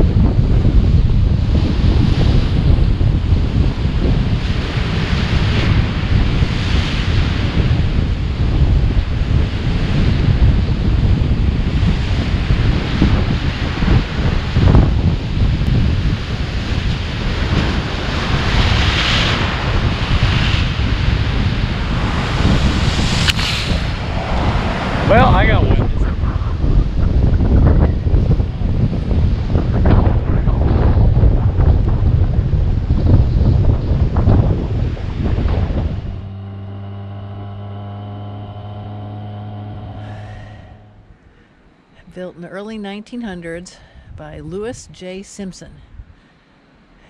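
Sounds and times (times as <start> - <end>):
surf: 0.0 - 41.2
wind rumble on microphone: 0.0 - 41.3
motorcycle engine running steadily: 34.6 - 41.2.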